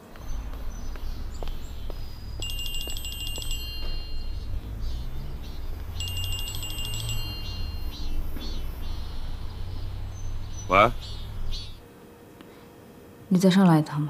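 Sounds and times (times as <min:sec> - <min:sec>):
phone ringtone chiming melody: 0:02.4 - 0:08.2.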